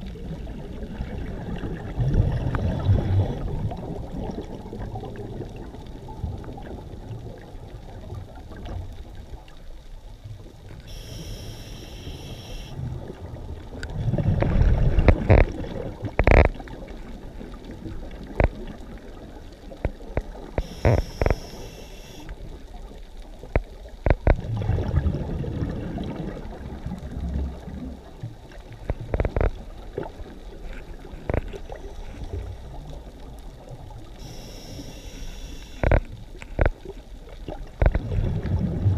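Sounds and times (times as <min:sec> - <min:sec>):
gurgling exhaled bubbles: 0:00.0 - 0:09.0, 0:12.8 - 0:22.5, 0:24.1 - 0:38.9
low underwater rumble: 0:00.0 - 0:38.9
hissing regulator inhale: 0:10.9 - 0:12.8, 0:20.6 - 0:22.3, 0:34.2 - 0:36.0.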